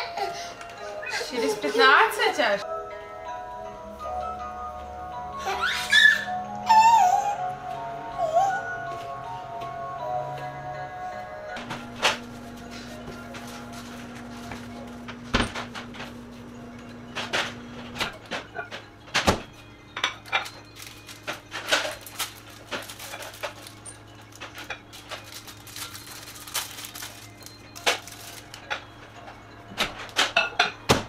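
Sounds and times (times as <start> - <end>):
low steady hum: 11.6 - 29.4
dishes clattering on countertop: 29.8 - 31.0.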